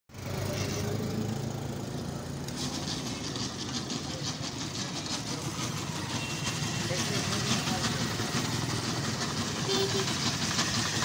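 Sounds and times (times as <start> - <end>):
engine idling: 0.1 - 11.0
fast even rattle: 2.5 - 11.0.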